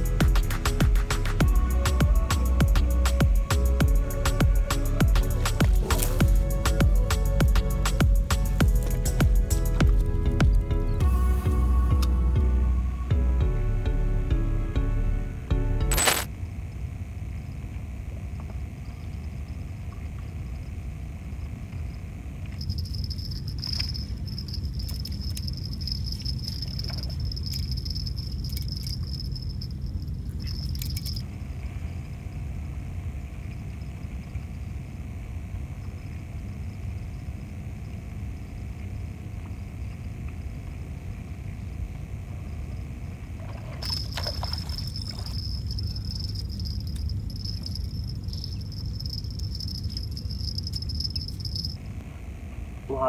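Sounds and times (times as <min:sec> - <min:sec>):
fishing reel whirring and clicking: 0:22.6 - 0:31.2, 0:43.8 - 0:51.8.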